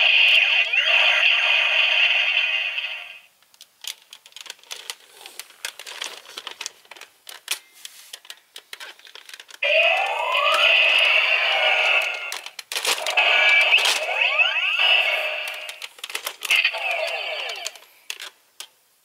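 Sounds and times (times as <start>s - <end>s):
toy blaster electronic sound effects: 0.0s - 3.3s, 9.6s - 15.8s, 16.4s - 17.9s
rising electronic tone: 9.6s - 12.3s, 13.2s - 15.8s.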